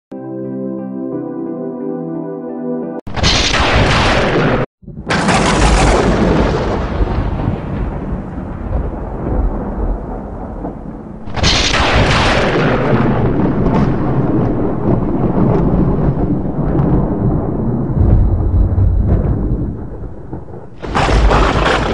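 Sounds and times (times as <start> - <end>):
sharp thunderclap: 3.1 - 21.9
thunder rumbling: 3.1 - 21.9.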